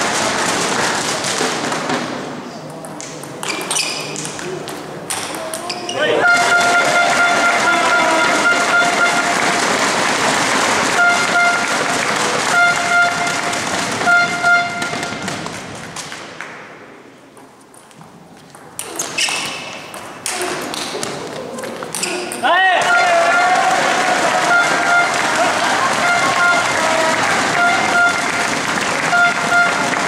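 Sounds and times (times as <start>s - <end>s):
spectators loud din: 3.5s - 15.7s, 20.2s - 30.0s
horn tooting: 6.0s - 10.0s, 10.8s - 15.5s, 22.8s - 30.0s.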